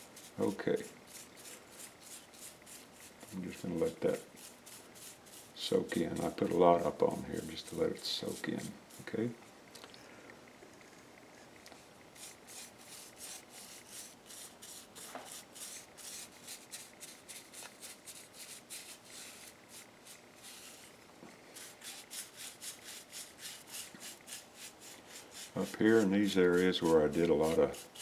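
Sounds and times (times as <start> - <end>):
brush strokes on wood: 0.0 - 9.3, 11.8 - 20.9, 21.5 - 28.0.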